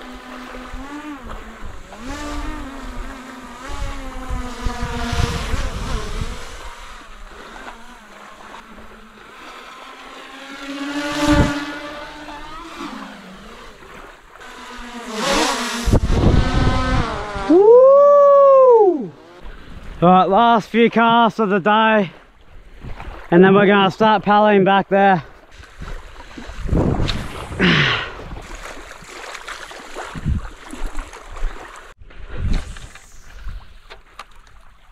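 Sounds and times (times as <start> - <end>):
wind on microphone: 0.0 - 7.8, 11.0 - 14.0, 14.8 - 20.0, 22.5 - 23.3, 25.5 - 29.1, 29.9 - 33.9
drone propellers whining: 0.0 - 19.6.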